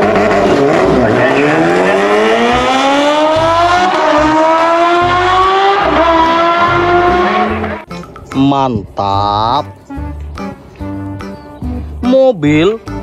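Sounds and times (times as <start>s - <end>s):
motorcycle engines revving: 0.0s - 7.9s.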